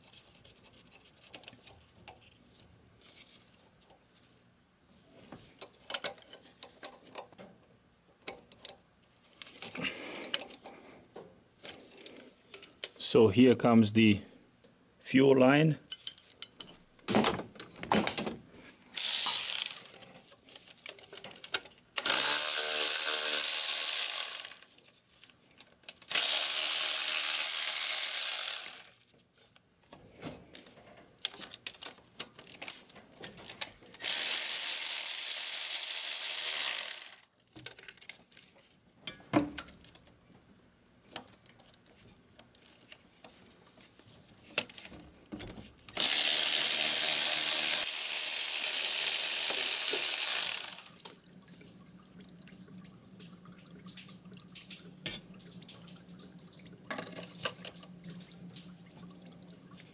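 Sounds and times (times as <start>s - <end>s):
tools and parts clinking: 5.6s - 7.5s, 15.9s - 18.4s, 31.2s - 34.1s, 56.9s - 57.8s
cordless electric ratchet spinning: 19.0s - 20.0s, 22.0s - 24.7s, 26.1s - 29.0s, 34.0s - 37.3s, 46.0s - 51.0s.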